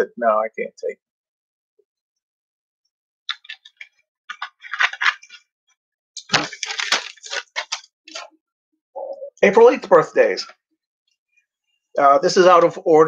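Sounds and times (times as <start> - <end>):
plastic bottle and paper crinkling: 3.3 - 5.4, 6.2 - 8.4.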